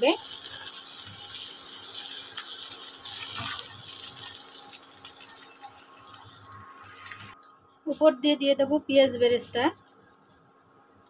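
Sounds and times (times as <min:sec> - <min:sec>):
rice and prawns sizzling in pan: 0:00.0 - 0:07.4.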